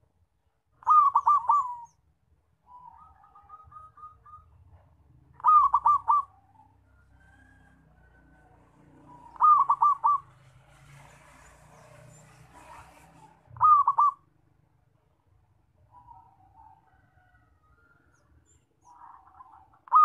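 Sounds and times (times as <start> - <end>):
dove cooing: 0.8 - 2.0, 2.7 - 7.1, 8.1 - 10.8, 12.2 - 14.3, 18.9 - 20.0.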